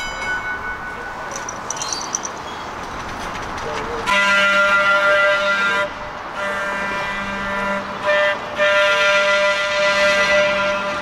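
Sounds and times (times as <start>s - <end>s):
trolley wheels pitched tone: 0.0s - 4.2s.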